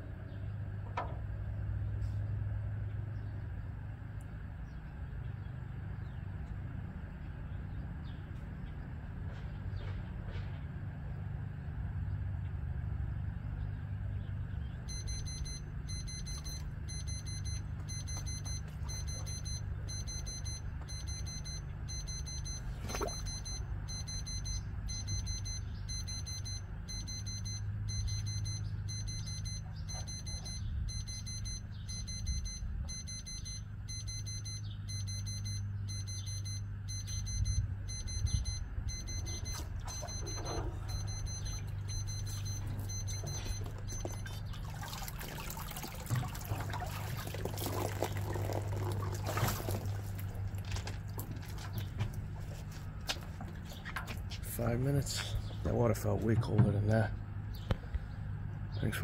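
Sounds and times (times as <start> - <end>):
low hum: 11.6 - 58.8
timer alarm beeping: 14.9 - 44.5.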